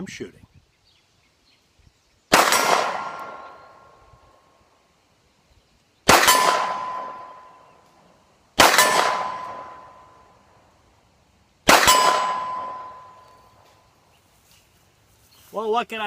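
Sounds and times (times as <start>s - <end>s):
pistol shots: 2.3s - 3.8s, 6.1s - 7.7s, 8.6s - 10.1s, 11.6s - 13.4s
bullet clanging on steel target: 6.2s - 7.6s, 11.8s - 13.4s.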